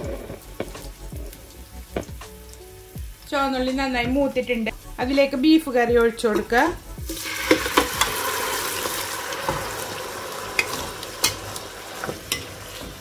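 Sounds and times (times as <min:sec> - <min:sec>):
curry sizzling in oil: 0:00.0 - 0:13.0
spatula knocking pan: 0:06.0 - 0:08.3.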